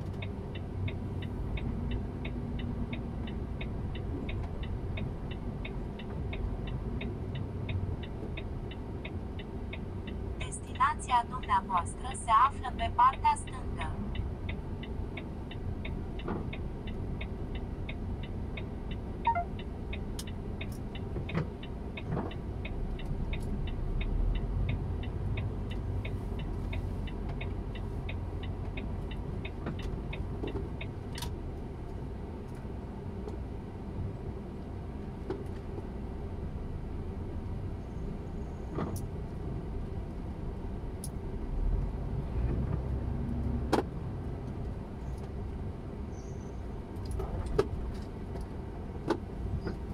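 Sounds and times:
turn signal relay ticking: 0:00.0 - 0:10.3, 0:12.7 - 0:32.7
truck engine rumbling: 0:00.0 - 0:49.9.

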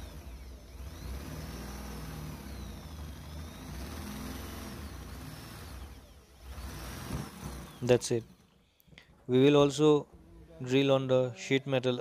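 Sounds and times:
electric drill boring through sheet metal: 0:00.0 - 0:08.6.

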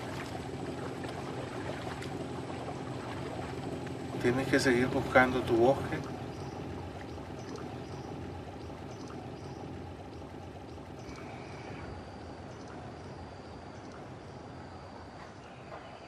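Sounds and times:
rushing water: 0:00.0 - 0:07.8.

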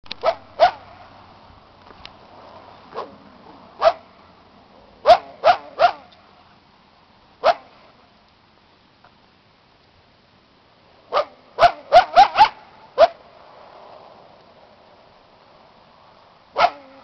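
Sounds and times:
dog barking: 0:00.2 - 0:00.8, 0:03.8 - 0:04.0, 0:05.0 - 0:06.1, 0:07.4 - 0:07.7, 0:11.1 - 0:13.2, 0:16.6 - 0:17.0.

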